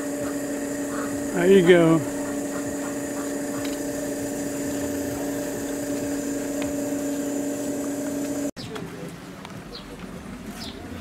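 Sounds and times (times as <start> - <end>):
small motor humming: 0.0 - 8.6.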